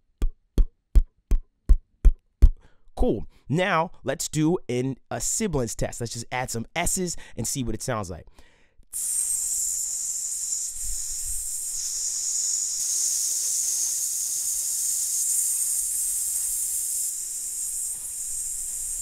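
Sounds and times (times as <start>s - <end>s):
man hissing into microphone: 9.0s - 19.0s.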